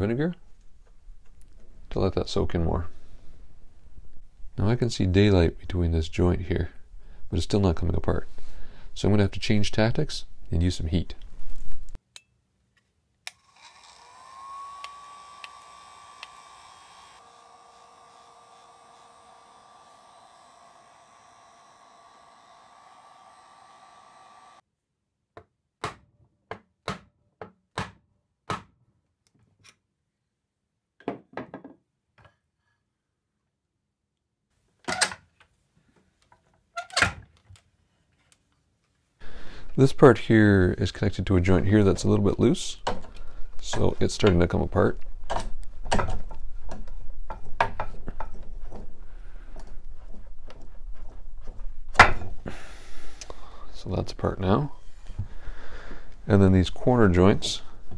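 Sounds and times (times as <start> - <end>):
heat gun blowing: 13.3 - 24.6, 52.4 - 53.6.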